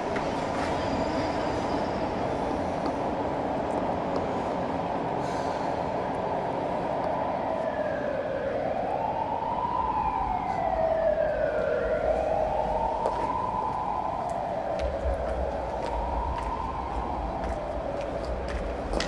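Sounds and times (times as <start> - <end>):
siren wailing: 6.3 - 18.6.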